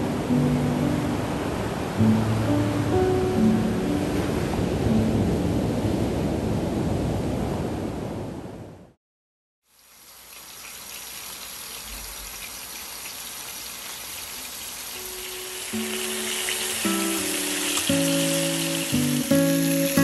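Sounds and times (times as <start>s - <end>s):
ocean surf breaking on shore: 0.0s - 8.8s, 15.0s - 20.0s
chicken frying in oil: 9.6s - 20.0s.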